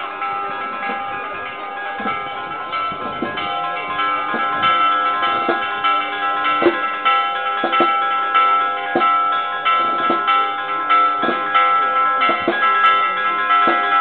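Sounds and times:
church bells ringing: 0.0s - 14.0s.

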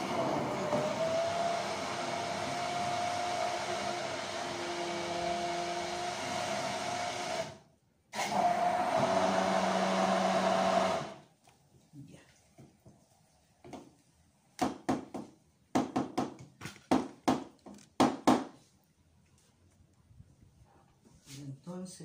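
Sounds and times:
hand blender motor whine: 0.0s - 7.6s, 8.2s - 11.2s.

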